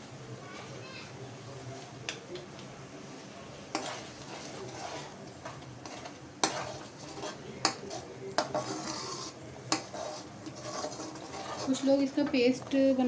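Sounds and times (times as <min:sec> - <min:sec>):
low sizzle of gravy: 0:02.6 - 0:13.0
spoon scraping metal pan: 0:03.7 - 0:13.0.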